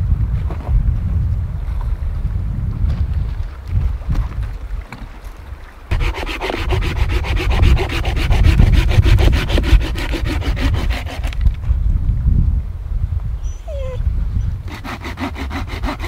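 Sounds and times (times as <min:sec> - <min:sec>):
hand saw cutting branch: 0:05.9 - 0:11.6, 0:14.7 - 0:16.0.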